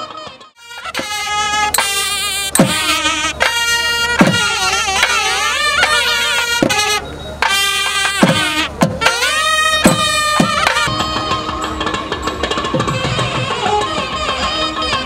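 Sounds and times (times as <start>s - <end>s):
heavy drum strokes: 0.9s - 15.0s
high ornamented melody: 5.3s - 15.0s.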